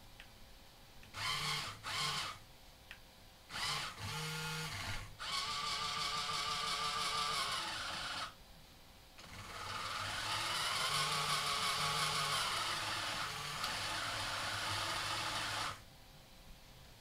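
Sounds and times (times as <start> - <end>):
small gearmotors whirring: 1.1 - 2.4, 3.5 - 8.4, 9.2 - 15.8.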